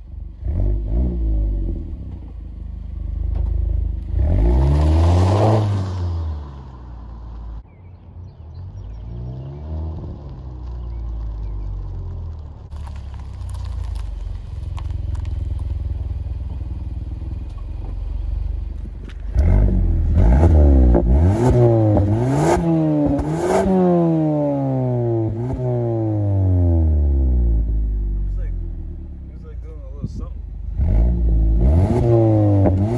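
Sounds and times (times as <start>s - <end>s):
car engine accelerating: 0.1s - 32.9s
exhaust revving in blips: 19.3s - 27.7s, 30.7s - 32.9s.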